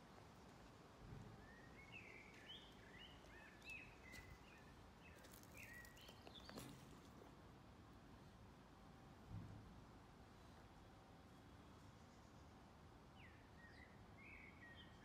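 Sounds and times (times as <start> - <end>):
songbird chirping: 1.4 - 7.3.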